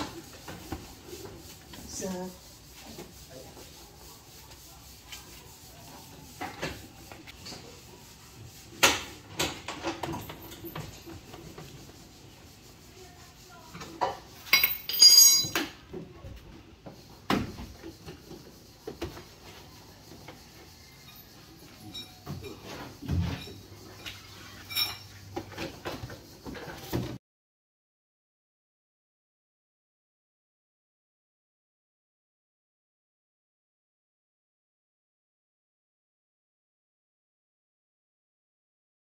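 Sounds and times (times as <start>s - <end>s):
ringing metallic clinks: 14.5s - 15.6s.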